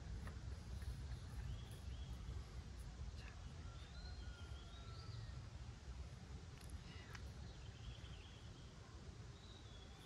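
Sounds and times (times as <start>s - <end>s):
low steady rumble: 0.0s - 10.0s.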